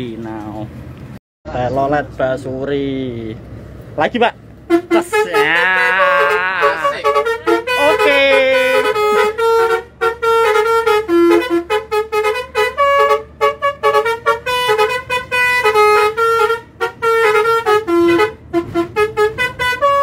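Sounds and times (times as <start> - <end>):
bus horn playing a tune: 4.7 - 20.0.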